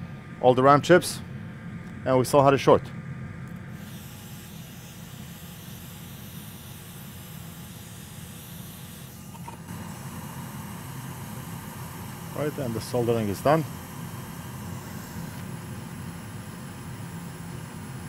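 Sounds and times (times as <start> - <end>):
low steady hum: 0.0 - 18.0
hot-air station hissing: 3.8 - 18.0.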